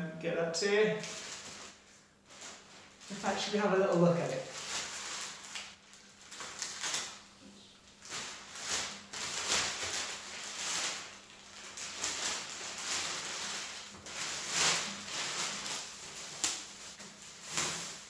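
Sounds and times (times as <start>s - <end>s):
bubble wrap rustling: 0.9s - 18.0s.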